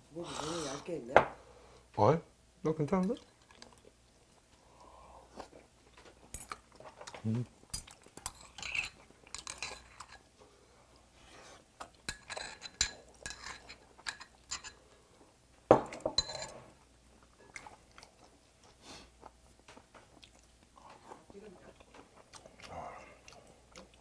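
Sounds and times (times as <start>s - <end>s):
chewing and slurping: 3.2s - 10.4s, 16.4s - 24.0s
utensils clinking on ceramic bowl: 7.7s - 10.2s, 12.1s - 14.8s, 15.7s - 16.6s.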